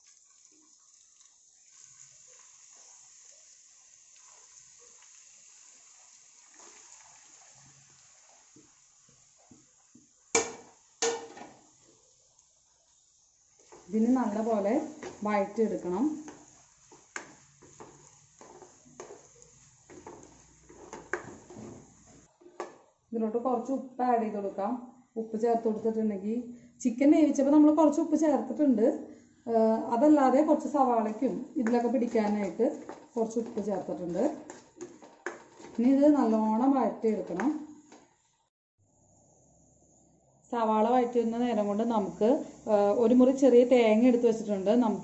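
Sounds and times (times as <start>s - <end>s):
faint sizzling in hot oil: 0.0s - 22.4s, 40.8s - 45.0s
plastic spoon stirring in a pot: 6.0s - 8.8s, 13.5s - 22.8s, 31.1s - 36.2s.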